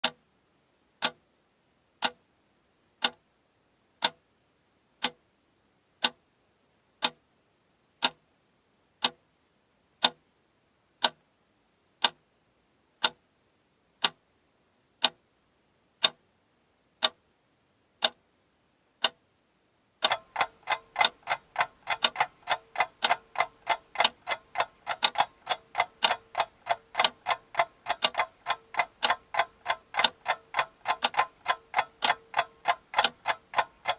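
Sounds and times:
clock ticking: 0.0 - 0.2, 1.0 - 1.2, 2.0 - 2.2, 3.0 - 3.2, 4.0 - 4.2, 5.0 - 5.2, 6.0 - 6.2, 7.0 - 7.2, 8.0 - 8.2, 9.0 - 9.2, 10.0 - 10.2, 11.0 - 11.2, 12.0 - 12.2, 13.0 - 13.2, 14.0 - 14.2, 15.0 - 15.2, 16.0 - 16.2, 17.0 - 17.2, 18.0 - 18.2, 19.0 - 19.2, 20.0 - 33.9
clatter of overlapping ticks: 20.0 - 33.9.

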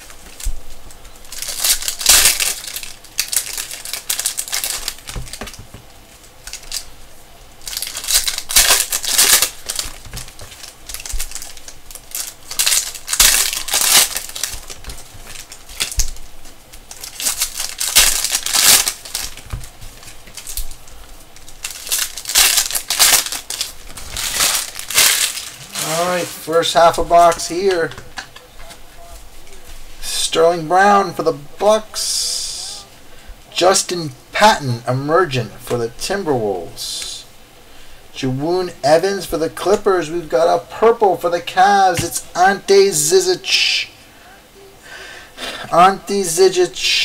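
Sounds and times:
foil wrappers crinkling and tearing: 0.0 - 30.9.

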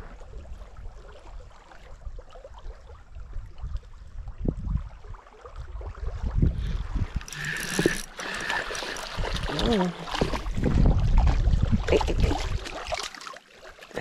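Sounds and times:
wind rumbling on microphone: 0.0 - 12.8
fish splashing: 6.8 - 11.2, 12.3 - 14.0
fishing reel whirring: 7.0 - 9.6.

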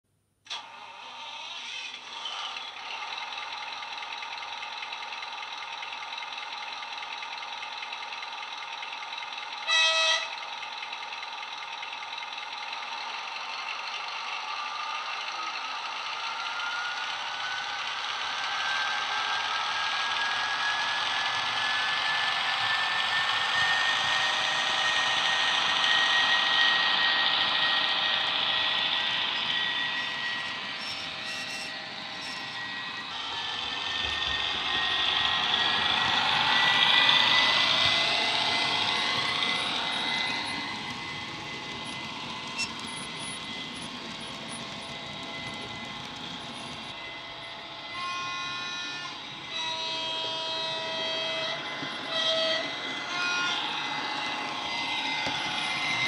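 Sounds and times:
model diesel engine sound: 0.5 - 56.0
locomotive horn blast: 9.7 - 10.4
rising whine: 15.4 - 56.0.

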